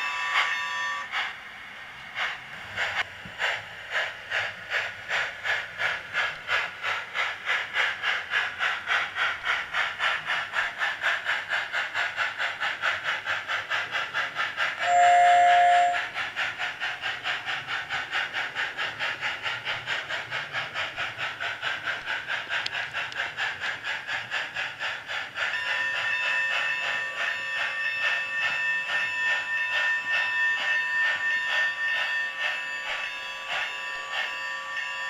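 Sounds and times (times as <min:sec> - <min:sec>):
simulated steam chuffs: 0:00.0 - 0:35.0
locomotive bell ringing: 0:25.5 - 0:35.0.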